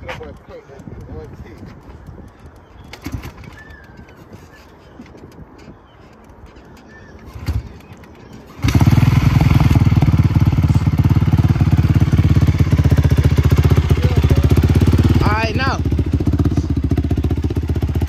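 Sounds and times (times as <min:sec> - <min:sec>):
quad bike engine idling: 0:08.5 - 0:18.0.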